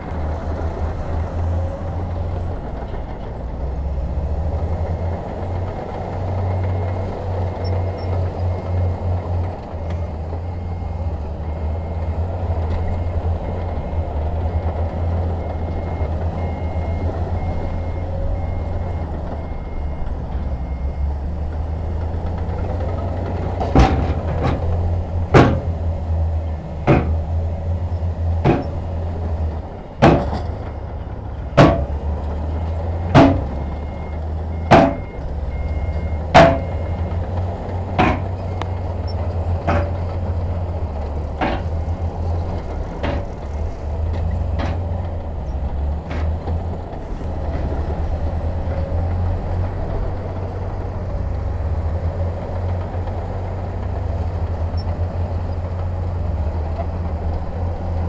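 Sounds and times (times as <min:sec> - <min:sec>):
heavy diesel engine running: 0:00.0 - 0:58.0.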